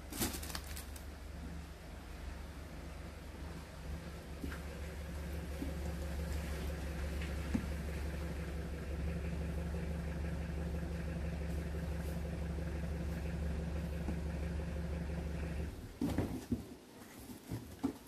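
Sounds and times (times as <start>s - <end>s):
motor humming: 3.3s - 16.0s.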